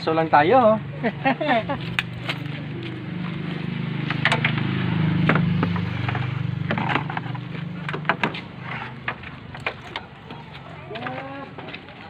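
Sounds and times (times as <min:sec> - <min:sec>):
clicks and knocks on engine parts: 0:04.0 - 0:10.4.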